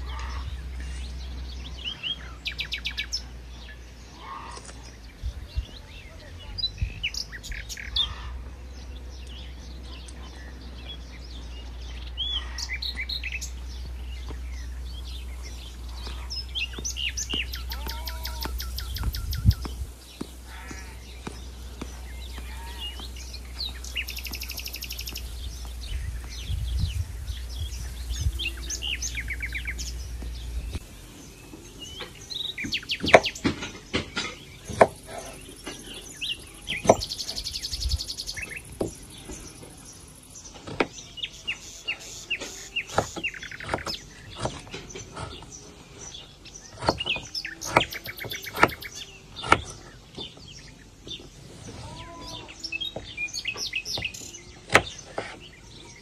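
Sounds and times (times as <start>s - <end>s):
small birds chirping: 0.0s - 56.0s
low rumble: 18.4s - 32.5s.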